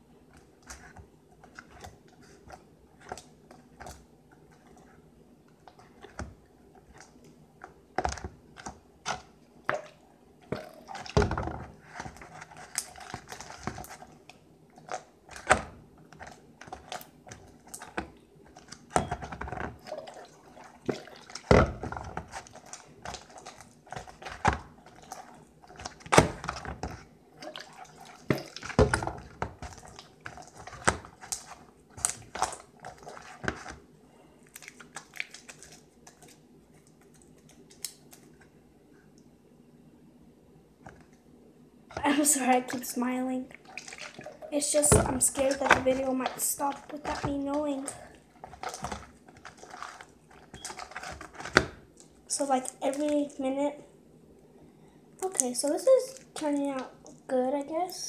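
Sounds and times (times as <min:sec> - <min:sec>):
slime squelching and popping: 0:05.6 - 0:38.4, 0:43.5 - 0:53.4, 0:55.2 - 0:57.2
slime thumping in bowl: 0:43.8 - 0:51.8.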